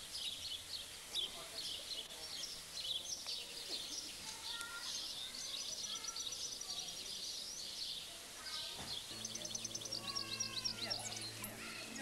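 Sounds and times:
songbirds singing: 0.0s - 12.0s
steady hiss: 0.0s - 12.0s
bird trill: 8.9s - 12.0s.

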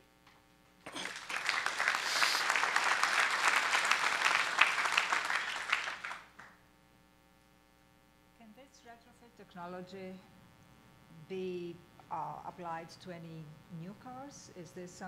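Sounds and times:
audience applauding: 0.9s - 6.5s.

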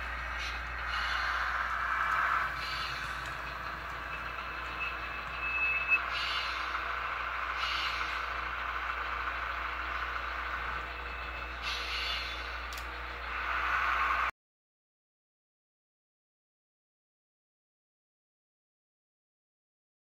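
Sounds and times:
diesel engine running sound: 0.0s - 14.3s.

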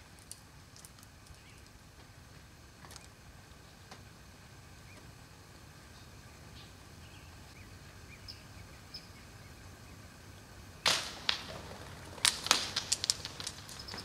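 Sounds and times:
low background hum: 0.0s - 14.0s
bird wings flapping: 10.9s - 14.0s.

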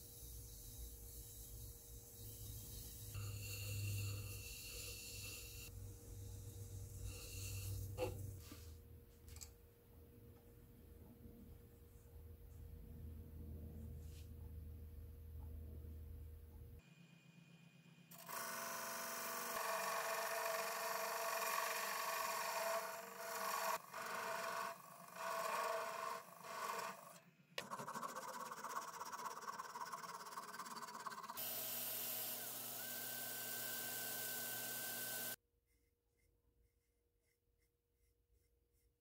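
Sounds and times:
wood lathe spinning: 0.2s - 5.7s, 18.1s - 35.4s
cordless drill with polishing pad: 31.4s - 35.4s.

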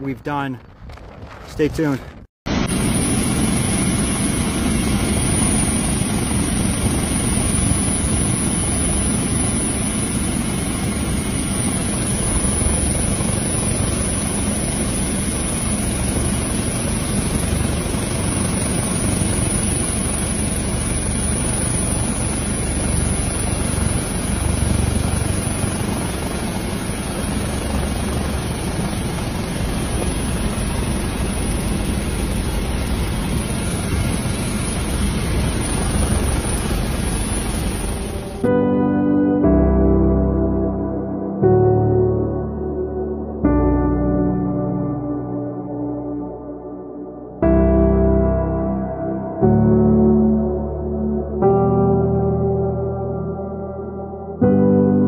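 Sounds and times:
helicopter engine and rotor: 2.5s - 38.6s.

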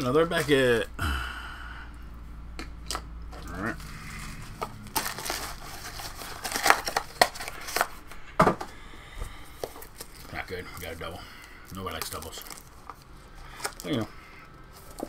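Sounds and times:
packaging crinkling and crackling: 2.9s - 8.2s, 9.5s - 15.0s.

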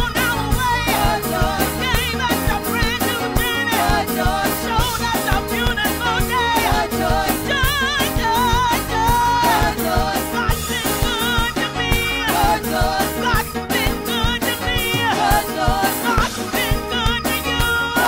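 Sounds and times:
gospel choir singing: 0.0s - 18.0s
instruments with steady beat: 0.0s - 18.0s
woman singing with vibrato: 0.0s - 18.0s.

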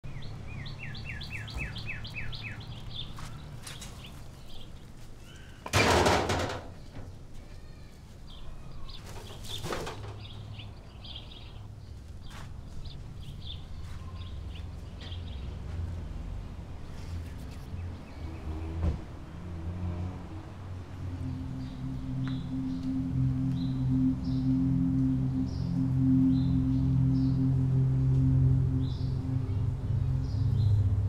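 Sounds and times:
small birds chirping: 0.0s - 5.7s, 6.8s - 15.7s
low steady hum: 19.2s - 31.0s.

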